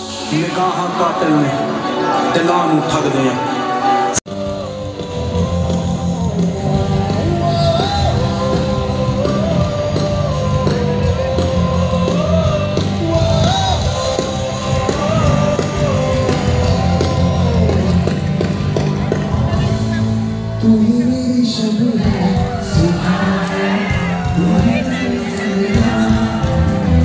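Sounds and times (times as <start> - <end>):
person singing over a beat: 4.2 - 19.0.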